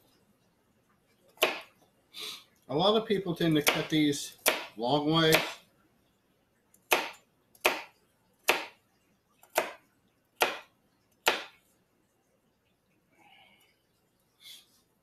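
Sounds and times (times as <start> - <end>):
knife chopping carrots on board: 1.4 - 1.7, 3.5 - 5.6, 6.9 - 8.8, 9.4 - 9.8, 10.4 - 11.6.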